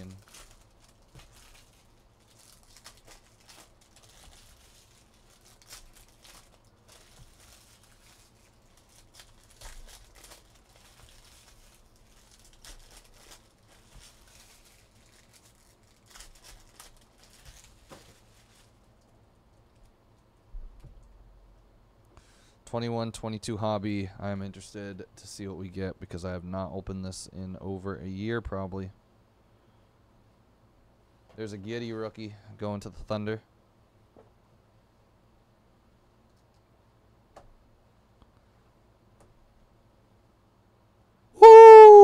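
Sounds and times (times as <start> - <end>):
foil wrappers crinkling and tearing: 0.0 - 19.0.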